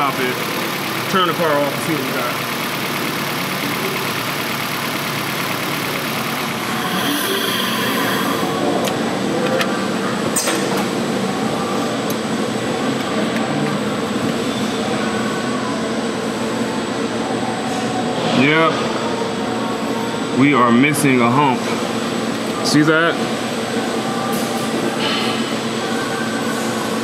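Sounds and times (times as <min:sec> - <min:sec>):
misfiring car engine idling: 0:00.0 - 0:10.3.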